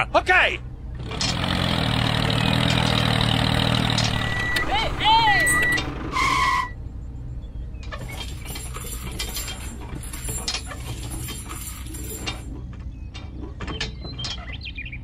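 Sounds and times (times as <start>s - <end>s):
short electronic tone: 3.9s - 6.8s
light clinks: 7.8s - 12.5s.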